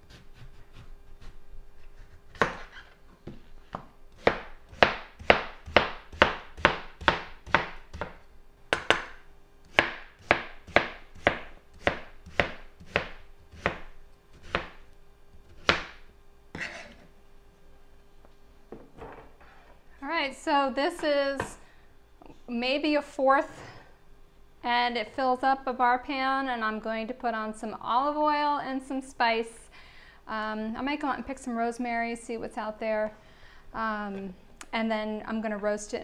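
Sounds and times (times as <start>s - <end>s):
soft knife scrape: 16.5s - 17.1s
knife slicing on cutting board: 16.6s - 17.0s.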